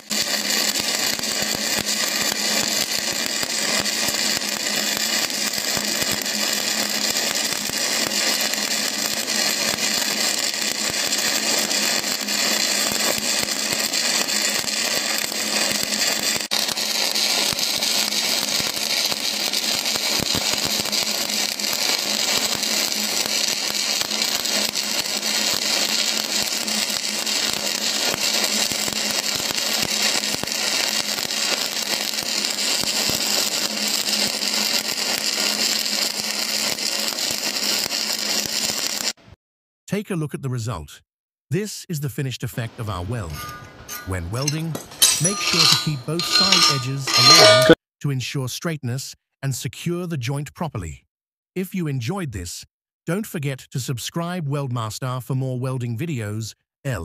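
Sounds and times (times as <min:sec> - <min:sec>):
welding arc crackling and hissing: 0:00.0 - 0:39.2, 0:42.9 - 0:47.8.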